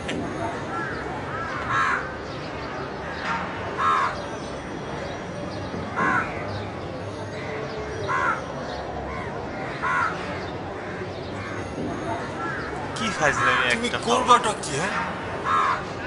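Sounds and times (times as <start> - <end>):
low background noise: 0.0 - 16.0
crow cawing: 0.7 - 2.2, 3.7 - 4.3, 6.0 - 6.5, 8.1 - 8.4, 9.1 - 11.7, 12.3 - 13.8, 15.4 - 16.0.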